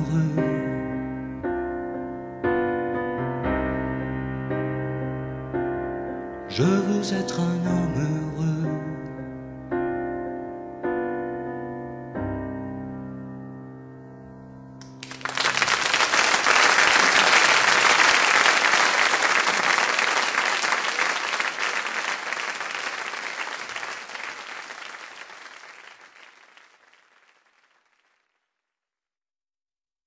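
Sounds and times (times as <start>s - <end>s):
audience applause: 14.8s - 28.2s.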